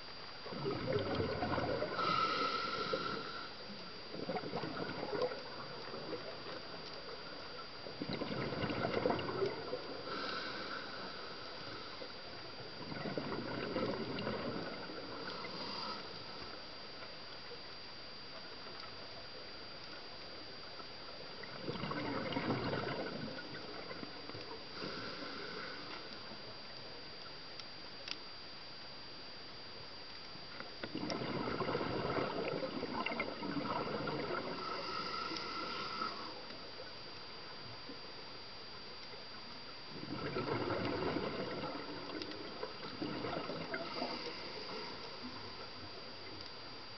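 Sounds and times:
exhaled bubbles gurgling underwater: 0.0 - 27.4, 30.0 - 46.9
bubbling exhalations underwater: 0.5 - 2.2, 8.0 - 10.3, 12.8 - 14.8, 21.5 - 24.0, 30.9 - 35.0, 40.0 - 44.3
regulator inhalation hiss: 1.8 - 3.8, 10.0 - 12.3, 15.2 - 16.5, 24.7 - 26.1, 34.5 - 36.6, 43.8 - 45.3.

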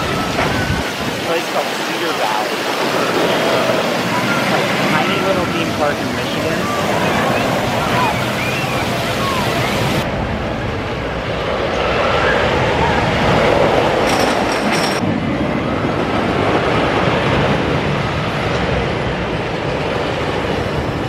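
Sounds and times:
roller coaster rumbling and clattering: 0.0 - 21.0.

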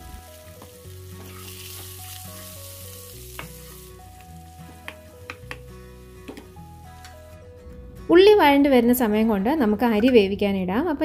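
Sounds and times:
onions sizzling in a frying pan: 0.0 - 7.0.

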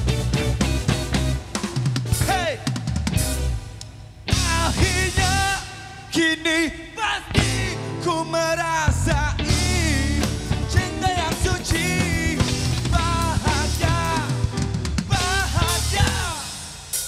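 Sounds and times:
live rock band playing: 0.0 - 6.3, 7.2 - 17.0
man singing: 2.2 - 3.0, 4.3 - 16.8.

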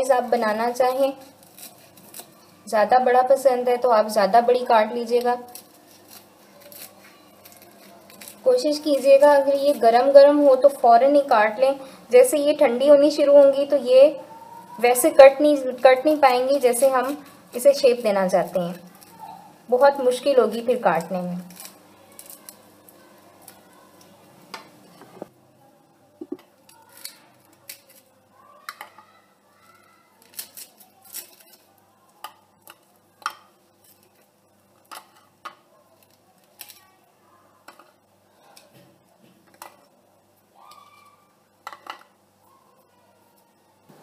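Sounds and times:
knife cutting crisp sweet: 0.6 - 2.6, 5.0 - 9.9, 29.7 - 34.2.

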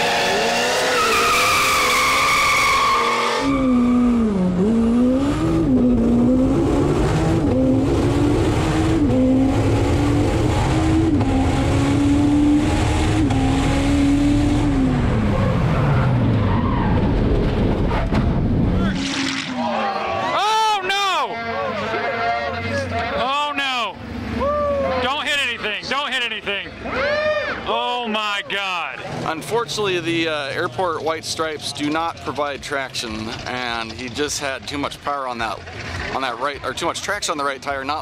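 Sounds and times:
car engine accelerating through gears: 0.0 - 18.8.

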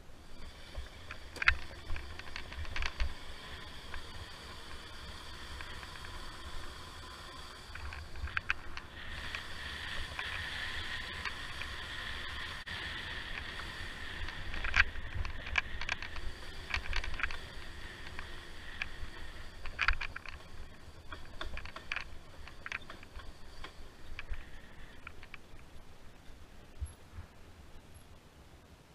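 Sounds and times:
wind rumbling on microphone: 0.0 - 27.9
steady high whine: 0.0 - 28.9
clicks and rattles: 0.7 - 10.4, 13.3 - 25.6.

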